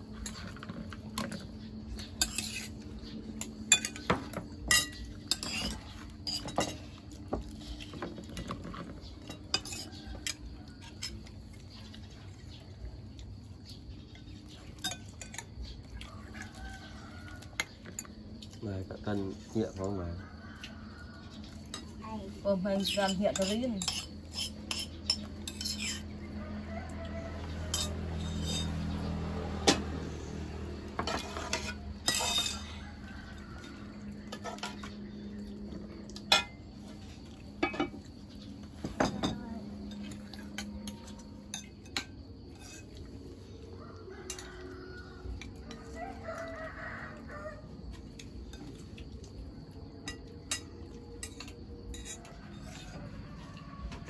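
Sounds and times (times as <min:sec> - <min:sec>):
utensils clinking on pots and dishes: 0:00.0 - 0:12.1, 0:14.4 - 0:16.6, 0:17.4 - 0:20.0, 0:21.4 - 0:26.9, 0:27.6 - 0:30.2, 0:30.9 - 0:43.2, 0:44.1 - 0:46.0, 0:50.0 - 0:54.0
rooster crowing: 0:09.6 - 0:11.0, 0:16.0 - 0:17.9, 0:20.0 - 0:21.8, 0:25.8 - 0:36.1, 0:43.6 - 0:48.3, 0:52.0 - 0:54.0.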